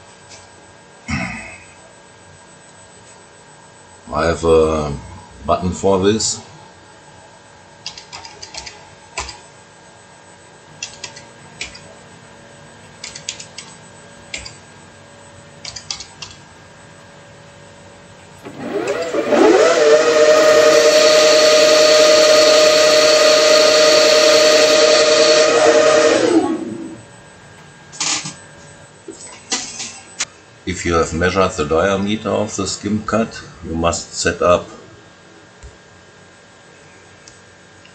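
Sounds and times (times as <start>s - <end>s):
lathe spindle whine: 10.0s - 30.2s.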